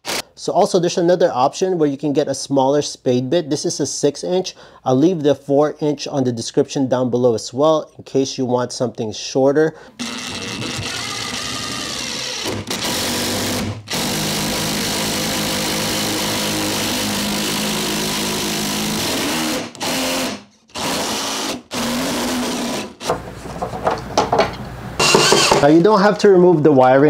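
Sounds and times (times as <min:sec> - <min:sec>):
power drill boring wood: 0:10.0 - 0:23.1, 0:25.0 - 0:25.7.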